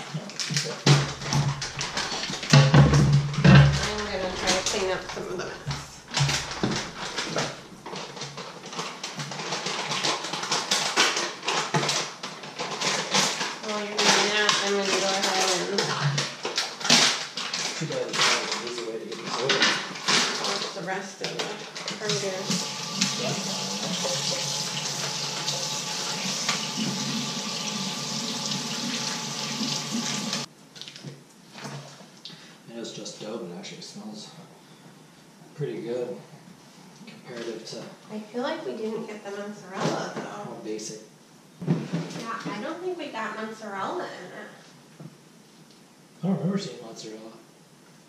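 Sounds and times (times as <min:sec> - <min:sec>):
tap water running into sink: 0:00.9 - 0:07.7, 0:22.0 - 0:30.5.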